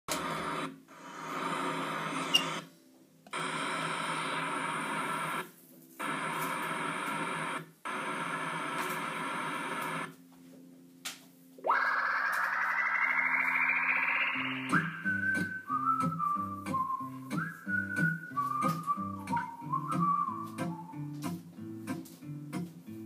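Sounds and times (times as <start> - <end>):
radio-like static hiss: 0.1 - 23.0.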